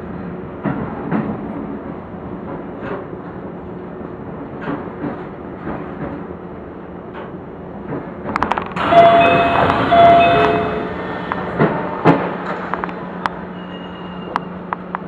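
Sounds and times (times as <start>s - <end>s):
train wheels rumbling on rail: 0.0s - 15.0s
wheels clacking over rail joints: 7.1s - 13.0s.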